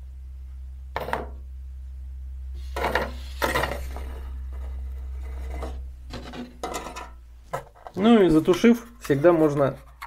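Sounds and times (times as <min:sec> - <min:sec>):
steady low hum: 0:00.0 - 0:10.0
handling rustles and light knocks: 0:02.8 - 0:10.0.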